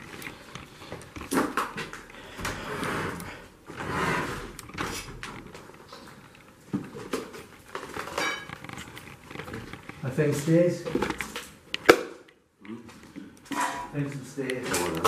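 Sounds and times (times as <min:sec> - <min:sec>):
scraping rustling noises: 0:12.9 - 0:15.0.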